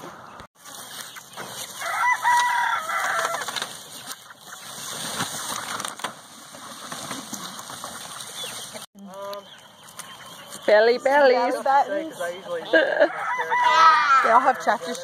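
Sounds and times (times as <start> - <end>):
hens clucking: 0.0 - 15.0
rooster crowing: 1.8 - 3.5, 13.0 - 14.6.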